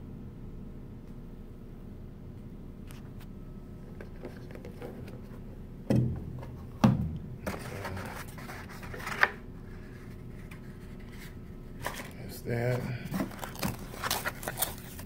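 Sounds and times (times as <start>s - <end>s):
cardboard scraping and rustling: 7.4s - 15.0s.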